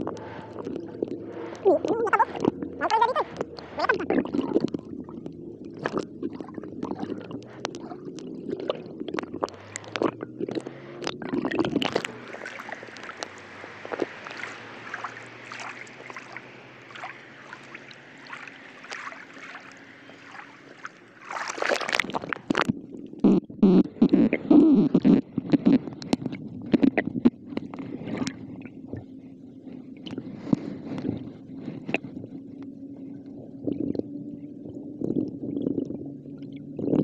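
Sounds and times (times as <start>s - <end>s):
water splash: 0.0s - 22.8s
small underwater clicks: 0.0s - 37.0s
water sloshing and gurgling: 0.0s - 37.0s.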